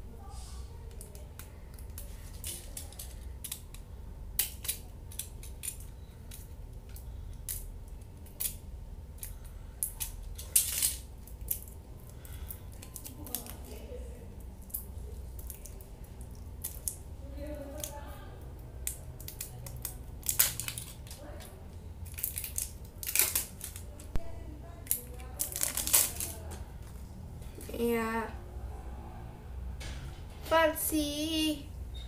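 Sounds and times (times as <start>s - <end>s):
packet wrapping crackling: 18.9s - 24.2s, 24.9s - 26.9s.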